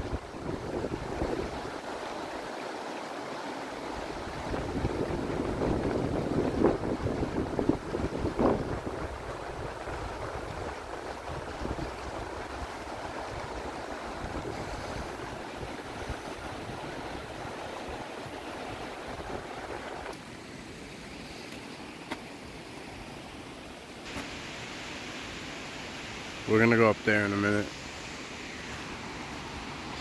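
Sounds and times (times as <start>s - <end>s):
rushing water: 0.0s - 30.0s
wind buffeting microphone: 4.2s - 20.1s.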